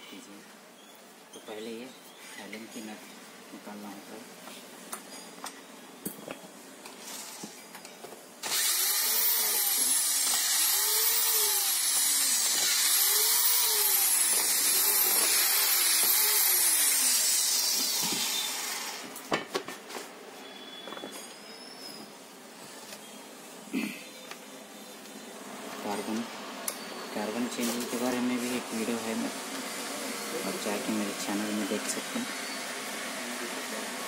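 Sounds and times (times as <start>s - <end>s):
power drill motor whine: 8.4s - 19.2s, 29.8s - 33.8s.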